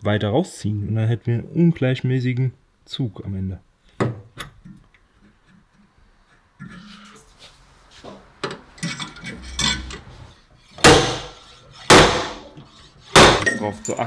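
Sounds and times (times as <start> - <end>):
ringing metallic impacts: 13.2 - 14.0
metal tools clinking on sheet metal: 13.3 - 14.0.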